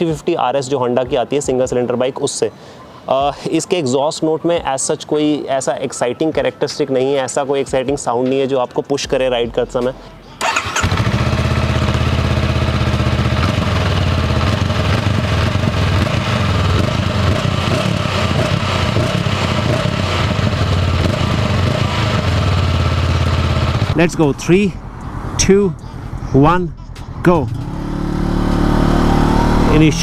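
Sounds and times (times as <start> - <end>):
motorcycle engine idling and revving: 10.4 - 30.0.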